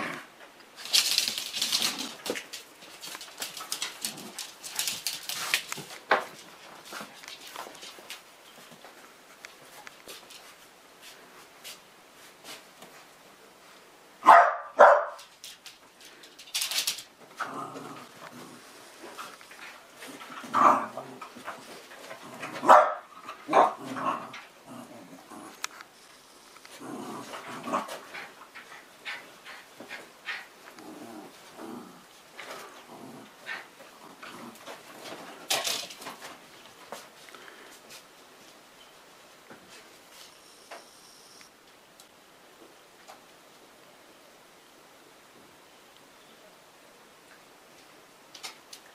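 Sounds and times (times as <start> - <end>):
dogs play-fighting: 0.8 - 8.8, 26.6 - 37.1
small dog barking: 14.2 - 15.2, 22.6 - 23.8.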